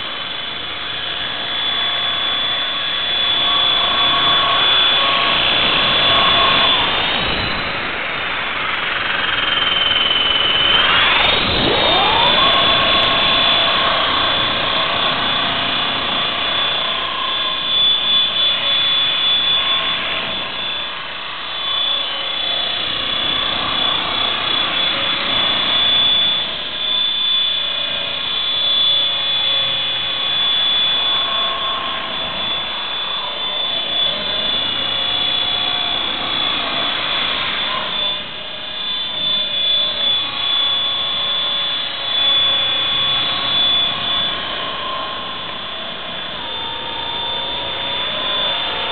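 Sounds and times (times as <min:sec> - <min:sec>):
spinning rotors humming: 0:00.0 - 0:26.8
rc helicopter motor whine: 0:00.0 - 0:48.9.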